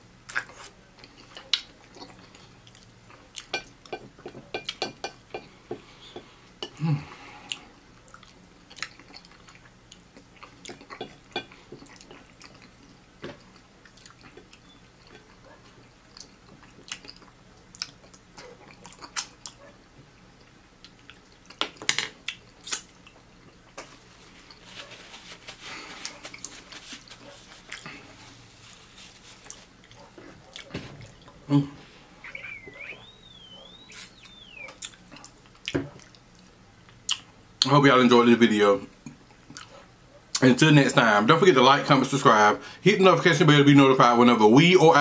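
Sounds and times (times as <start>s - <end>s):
chewing and wet mouth sounds: 0.2s - 4.8s, 7.4s - 31.4s, 32.3s - 37.4s, 39.0s - 40.4s.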